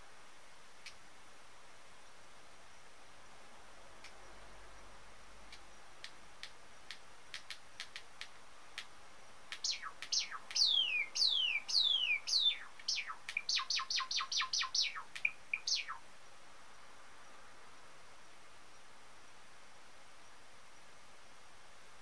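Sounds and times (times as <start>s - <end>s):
sparrow singing: 9.5s - 16.0s.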